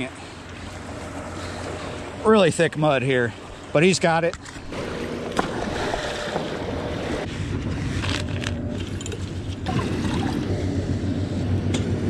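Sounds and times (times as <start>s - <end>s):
river water: 0.0s - 11.9s
wind: 0.0s - 12.0s
low rumble: 4.6s - 12.0s.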